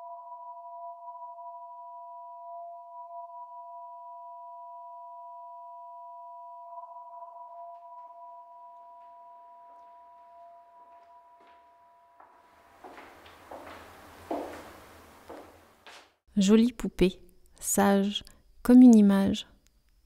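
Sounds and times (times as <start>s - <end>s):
faint room noise: 9.8s - 20.0s.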